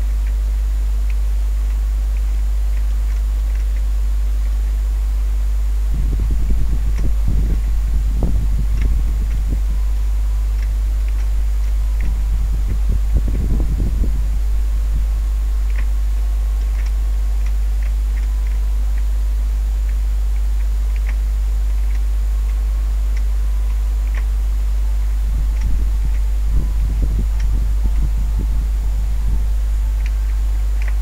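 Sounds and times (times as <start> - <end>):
faint ticks: 0.0 - 4.7, 10.6 - 28.5, 29.2 - 31.0
electrical hum: 0.0 - 31.0
brief low rumbles: 23.8 - 31.0.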